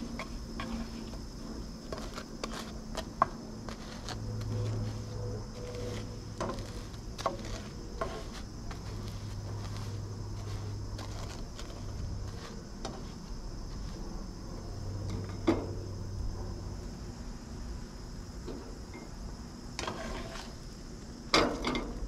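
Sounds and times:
spatula scraping frying pan: 0.0s - 14.0s, 19.8s - 20.6s
steady low hum: 0.0s - 22.0s.

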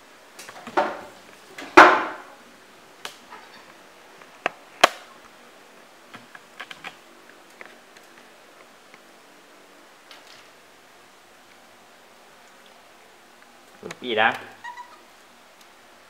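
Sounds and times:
monkey climbing on refrigerator: 14.3s - 15.1s.

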